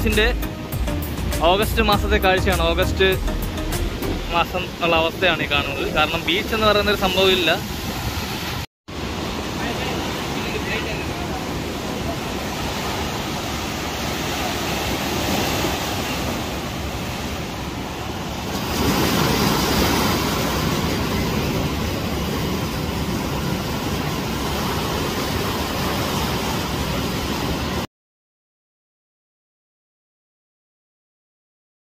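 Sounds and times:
waves breaking on shore: 3.7s - 27.9s.

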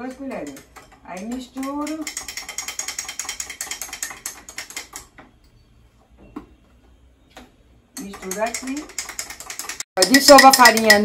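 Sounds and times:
spoon clinking against mug: 8.0s - 11.0s.

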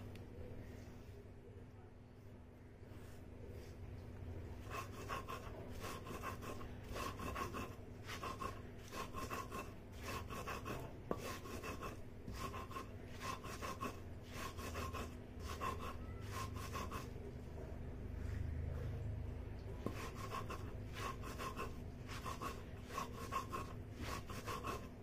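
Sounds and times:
stone grinding on stone slab: 4.6s - 17.0s.

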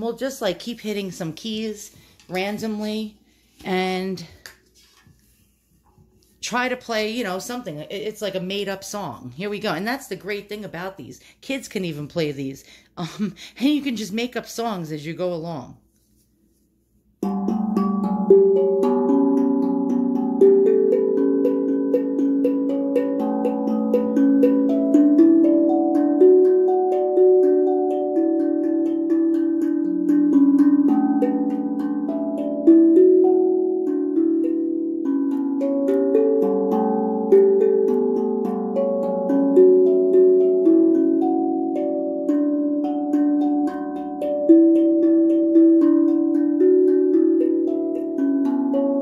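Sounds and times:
tongue drum melody: 17.2s - 49.0s.

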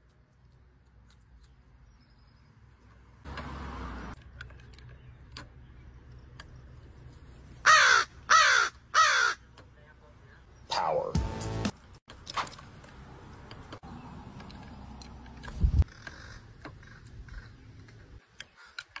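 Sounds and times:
crow cawing: 7.6s - 9.4s, 15.9s - 17.6s.

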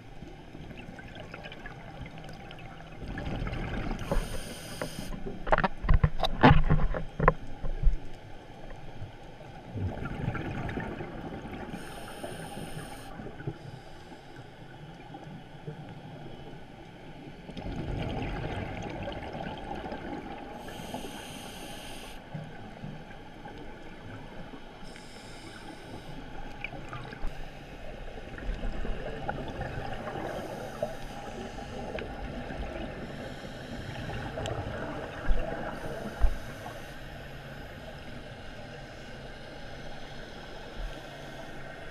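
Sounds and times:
regulator inhale hiss: 4.0s - 5.2s, 11.8s - 14.7s, 20.6s - 22.3s, 24.8s - 26.4s, 27.3s - 28.0s, 30.2s - 32.0s, 32.9s - 34.3s, 35.7s - 41.9s
exhaled bubbles rushing: 9.8s - 11.7s, 17.6s - 20.4s.

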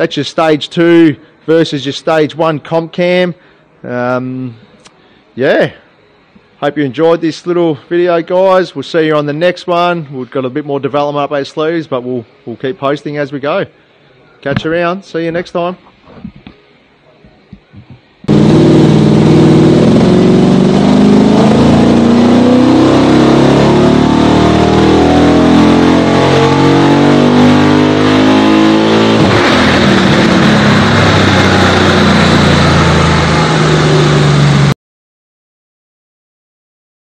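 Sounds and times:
car engine revving on dyno: 18.3s - 34.8s.

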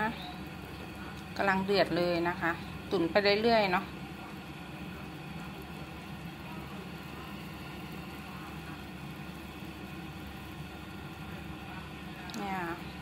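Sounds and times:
broth boiling in a pot: 0.0s - 13.0s
even hum: 0.0s - 13.0s.

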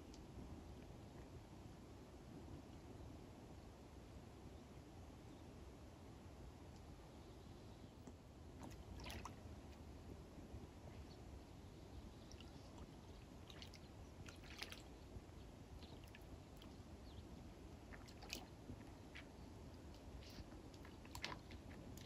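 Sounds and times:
dog splashing in water: 13.4s - 14.9s, 17.9s - 18.5s.

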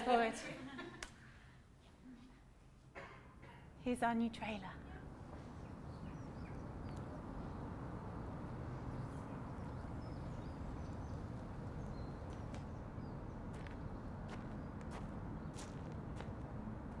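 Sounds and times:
low wind rumble: 3.7s - 17.0s
faint bird chirps: 5.3s - 13.2s.

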